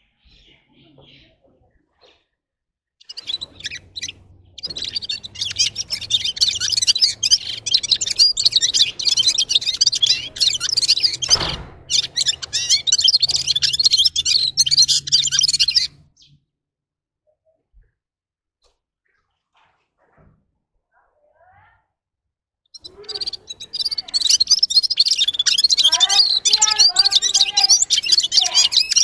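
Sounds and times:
bird twittering song: 3.0 - 16.4, 22.7 - 29.0.

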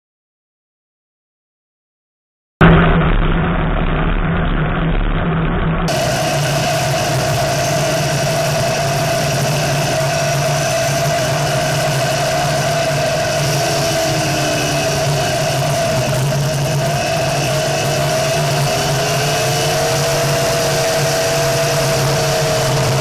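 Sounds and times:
buggy engine running: 3.2 - 23.0
wind and road noise: 5.4 - 23.0.

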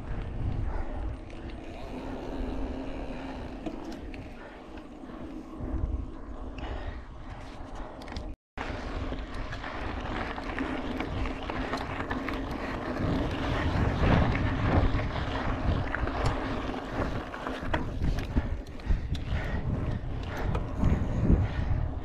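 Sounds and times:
bike tyre noise: 0.0 - 22.0
wind buffeting microphone: 0.0 - 22.0
bike rattling clicks: 16.1 - 21.2.

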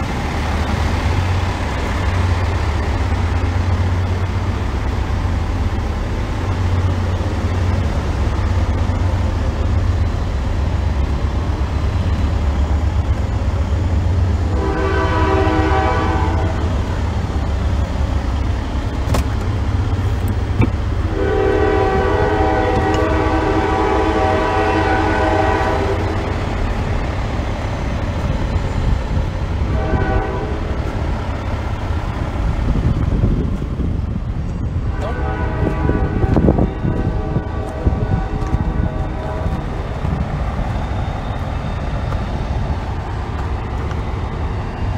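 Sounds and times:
train horn blasts: 14.5 - 16.8, 21.1 - 26.4, 29.7 - 30.8, 34.9 - 39.8.

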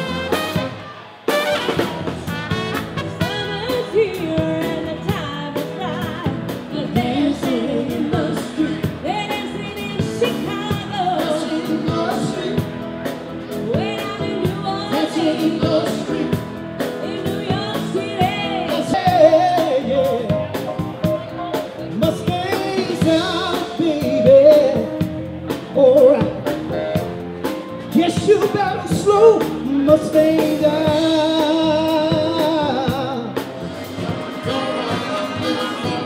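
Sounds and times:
drum kit beating: 0.0 - 36.0
live band playing: 0.0 - 36.0
person singing: 3.2 - 12.8, 13.6 - 27.0, 27.9 - 36.0.

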